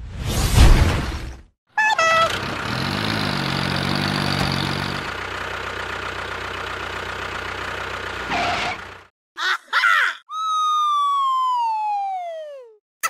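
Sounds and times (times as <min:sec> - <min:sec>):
engine running steadily: 0:02.0 - 0:09.1.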